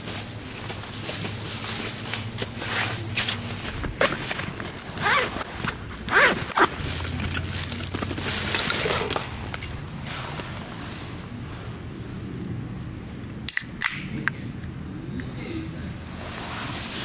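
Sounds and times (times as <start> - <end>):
plastic liner rustling: 0.0 - 9.8
zipper being pulled: 2.7 - 9.8.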